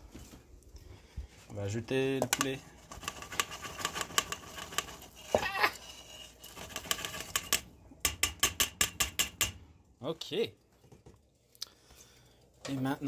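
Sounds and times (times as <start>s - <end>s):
metal scraping on metal: 2.2s - 9.4s
pan knocking against pot: 6.7s - 9.6s.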